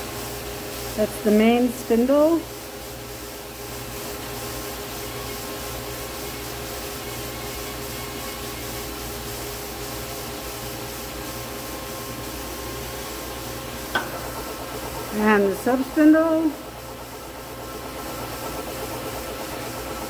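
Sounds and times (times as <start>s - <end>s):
lathe spindle whirring: 11.7s - 20.0s.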